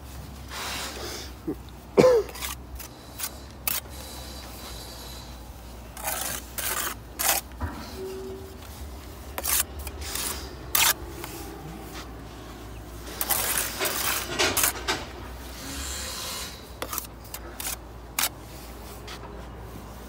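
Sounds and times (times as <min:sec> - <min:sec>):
trowel scraping mortar: 0:02.0 - 0:04.2, 0:05.0 - 0:12.1, 0:13.0 - 0:19.0
trowel tapping bricks: 0:16.8 - 0:18.4.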